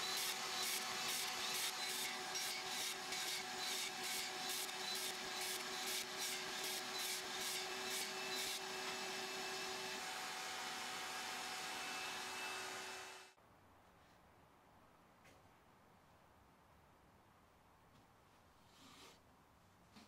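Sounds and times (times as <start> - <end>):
circular saw cutting wood: 0.0 - 13.4.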